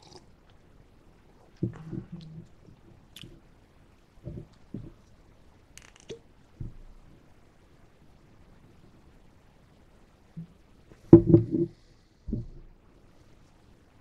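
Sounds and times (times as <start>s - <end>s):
soft thumps on table: 12.3s - 12.7s.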